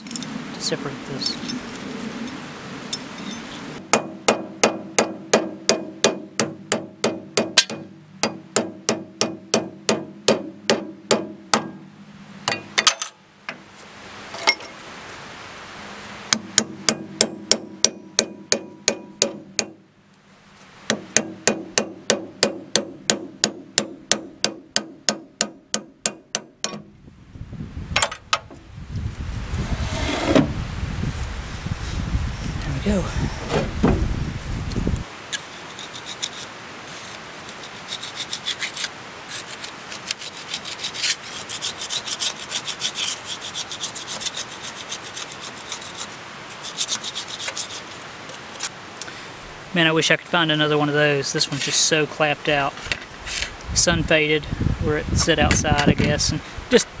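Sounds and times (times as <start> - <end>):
metal casting scraping: 1.2 - 3.6, 35.3 - 48.7
hammer striking steel wedges: 3.0 - 11.9, 16.3 - 19.8.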